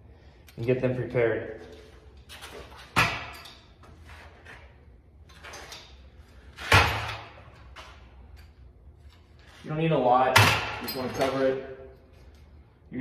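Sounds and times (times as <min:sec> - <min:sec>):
pipe fittings and tools clattering: 0:02.1 - 0:04.7, 0:10.4 - 0:11.6.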